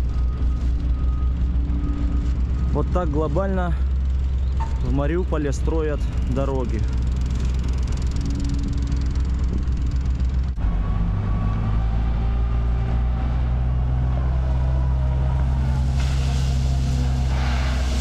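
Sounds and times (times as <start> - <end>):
diesel engine droning: 0.0 - 18.0
hissing noise: 15.3 - 18.0.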